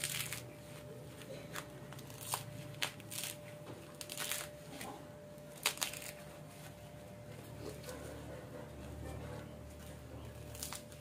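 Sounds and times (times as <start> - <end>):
coconut husk fibre ripping: 0.0 - 0.6, 1.5 - 6.8, 9.7 - 11.0.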